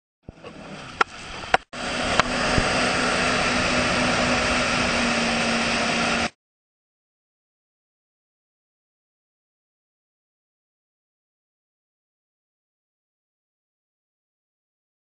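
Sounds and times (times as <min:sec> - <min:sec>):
motorboat engine hum: 0:00.2 - 0:06.4
wind and spray on microphone: 0:00.3 - 0:06.3.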